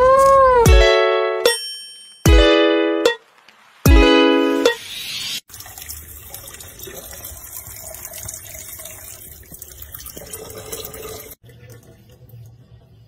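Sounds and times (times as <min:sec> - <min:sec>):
tap water splashing into sink: 0:05.5 - 0:12.1.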